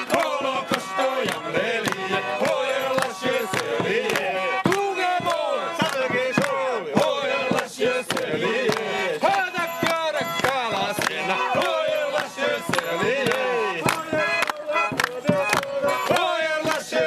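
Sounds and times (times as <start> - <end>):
clapping in time: 0.0 - 6.6, 7.5 - 16.9
group singing loudly: 0.0 - 17.0.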